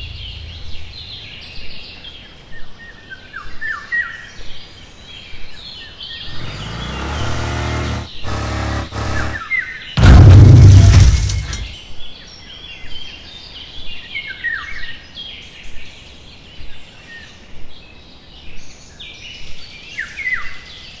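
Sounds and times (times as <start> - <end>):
small birds chirping: 0.0 - 9.9
loud crash: 6.4 - 9.4, 10.0 - 11.8.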